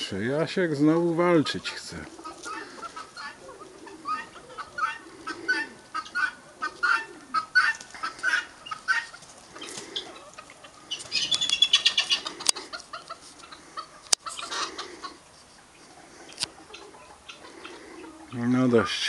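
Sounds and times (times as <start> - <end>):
chicken clucking: 1.3 - 19.0.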